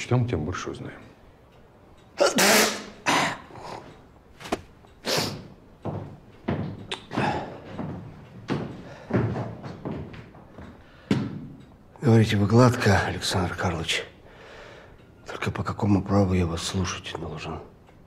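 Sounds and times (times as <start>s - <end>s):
rustling papers and cloth: 4.3s - 4.8s.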